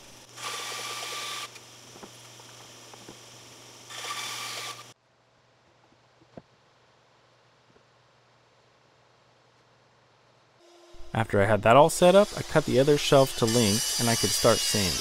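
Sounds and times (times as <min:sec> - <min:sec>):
bandsaw running hum: 0:00.0 - 0:05.0, 0:10.6 - 0:15.0
bandsaw cutting wood hiss: 0:11.8 - 0:15.0.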